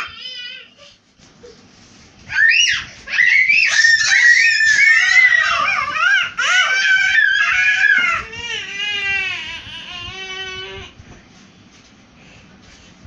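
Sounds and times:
toddlers shrieking and squealing: 0.0 - 1.0, 2.3 - 10.9.

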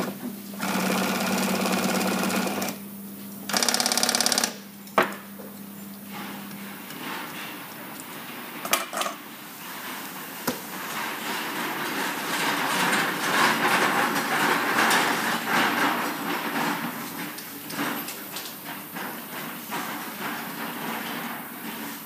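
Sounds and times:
sewing machine hum: 0.6 - 2.8, 3.5 - 4.6.

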